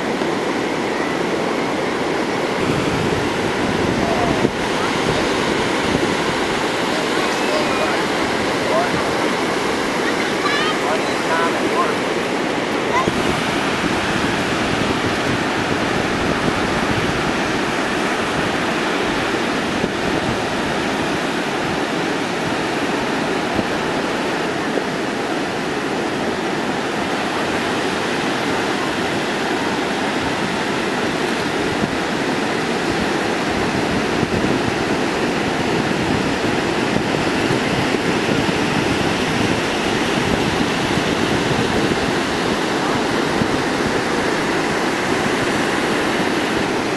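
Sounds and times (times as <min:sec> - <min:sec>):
ocean surf breaking: 0:00.0 - 0:46.9.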